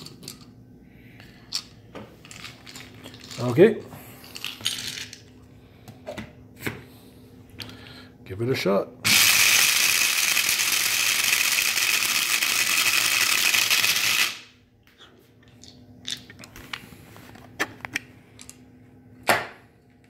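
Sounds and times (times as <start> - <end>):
coffee grinder grinding corn: 9.0 - 14.5.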